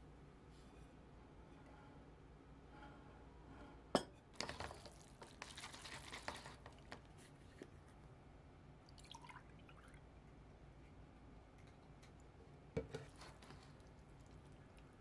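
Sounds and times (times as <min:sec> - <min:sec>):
chopsticks stirring noodles: 0:04.5 - 0:07.0
yogurt pouring into a glass: 0:08.9 - 0:10.1.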